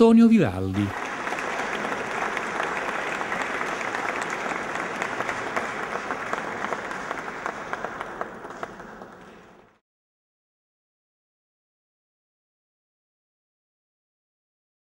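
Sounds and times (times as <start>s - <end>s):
audience applause: 0.4s - 9.8s.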